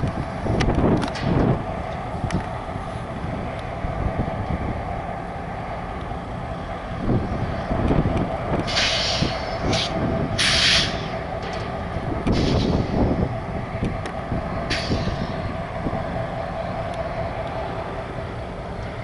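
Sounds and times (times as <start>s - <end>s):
steady low rumble: 0.0s - 19.0s
air brake hissing: 8.6s - 11.2s, 12.3s - 13.1s, 14.7s - 15.5s.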